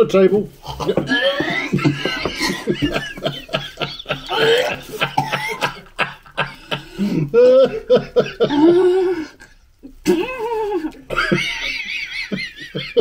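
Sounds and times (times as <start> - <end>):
people coughing: 0.6 - 9.2, 10.0 - 11.7
people chuckling: 0.6 - 13.0.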